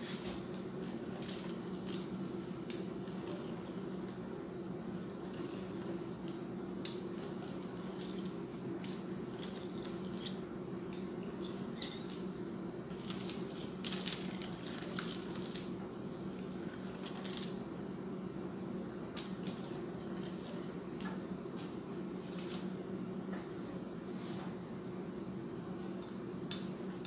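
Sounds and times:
steady low hum: 0:00.0 - 0:27.0
pizza cutter scraping dough: 0:02.8 - 0:03.9, 0:04.9 - 0:06.3.

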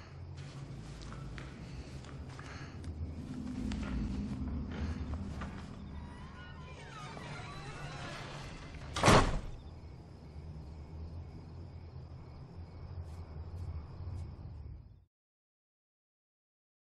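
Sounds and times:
low steady drone: 0:00.0 - 0:07.6
door creaking: 0:03.2 - 0:09.8
door slamming: 0:06.0 - 0:09.6.

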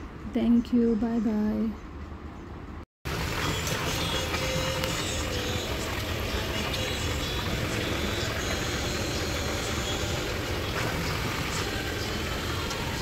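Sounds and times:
low machine hum with hiss: 0:03.1 - 0:13.0.

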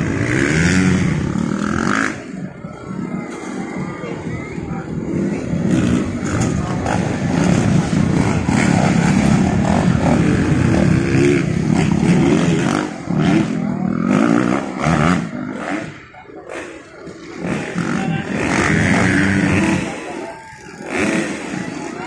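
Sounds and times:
dirt bike engine revving: 0:00.0 - 0:22.0.

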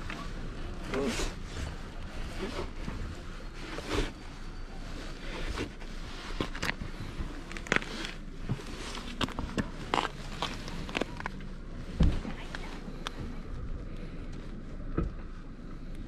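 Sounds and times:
steady low rumble: 0:00.0 - 0:16.0
hand rustling: 0:00.1 - 0:13.4.

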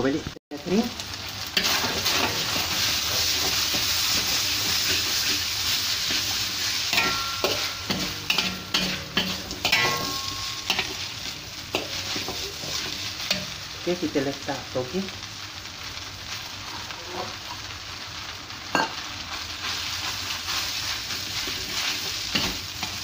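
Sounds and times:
noodles sizzling in a wok: 0:00.0 - 0:23.0
metal spatula scraping a wok: 0:01.6 - 0:13.6, 0:16.6 - 0:17.6, 0:19.6 - 0:23.0.

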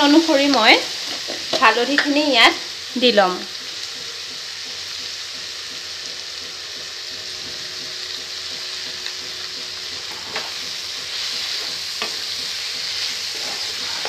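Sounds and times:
vegetables sizzling in oil: 0:00.0 - 0:14.0.

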